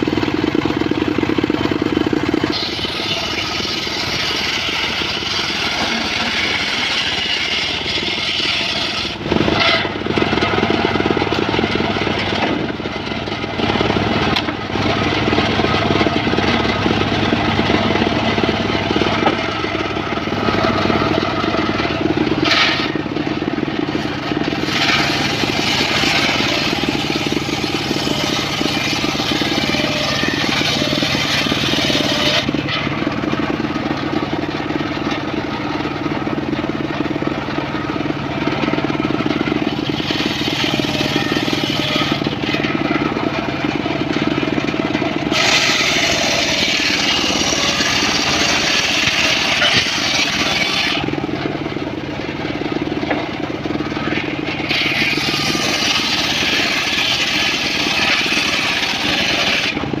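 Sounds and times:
circular saw motor drone: 2.2s - 23.0s, 24.0s - 33.2s, 45.2s - 51.2s.

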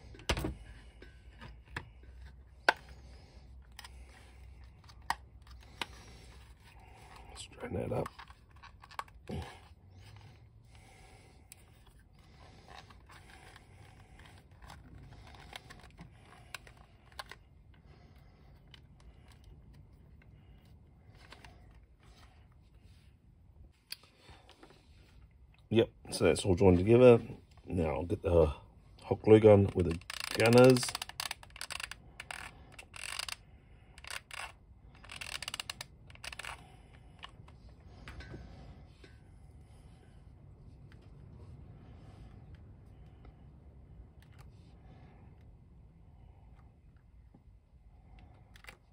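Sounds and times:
plastic toy parts clicking: 29.6s - 33.4s, 34.0s - 36.6s.

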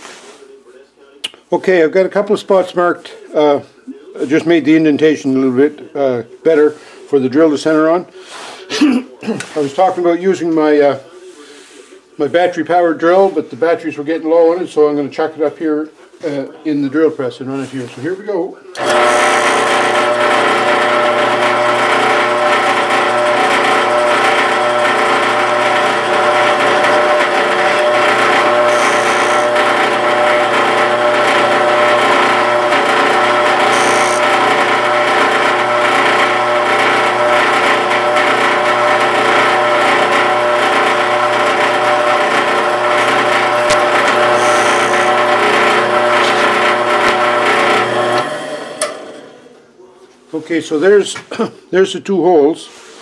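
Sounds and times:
drill press motor humming: 18.8s - 49.5s.

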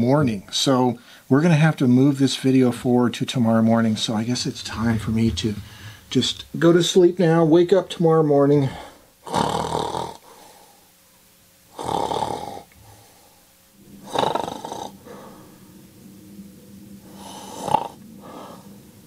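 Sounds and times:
man snoring: 8.7s - 10.2s, 11.7s - 12.7s, 13.9s - 15.4s, 17.1s - 18.7s.

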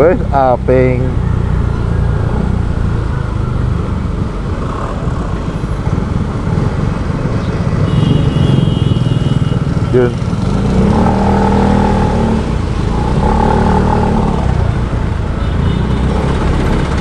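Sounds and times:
scooter engine and road noise: 0.0s - 17.0s
vehicles passing: 0.0s - 17.0s
wind rumbling on microphone: 1.1s - 15.4s.

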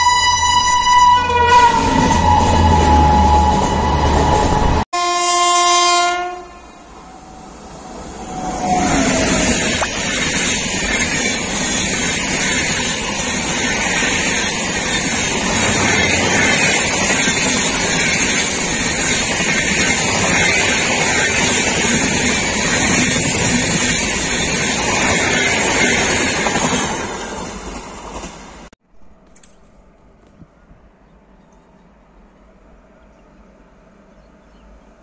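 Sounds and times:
train coaches rushing past: 0.0s - 4.8s, 6.7s - 28.7s.

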